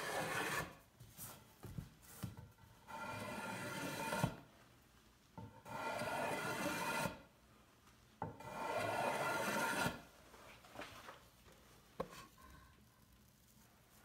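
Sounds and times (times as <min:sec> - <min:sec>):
plane scraping wood shavings: 0:00.0 - 0:00.7, 0:02.9 - 0:04.4, 0:05.6 - 0:07.2, 0:08.4 - 0:10.0.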